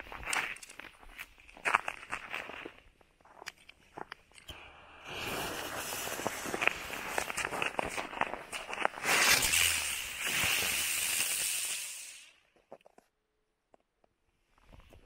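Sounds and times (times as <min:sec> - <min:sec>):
firework hissing: 0:04.5 - 0:12.4
firework crackles: 0:04.6 - 0:12.5.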